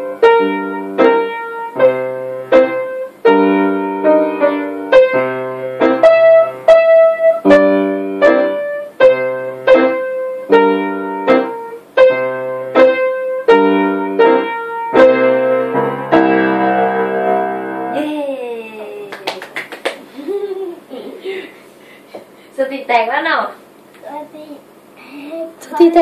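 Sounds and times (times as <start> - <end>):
piano notes and chords: 0.0 - 18.3.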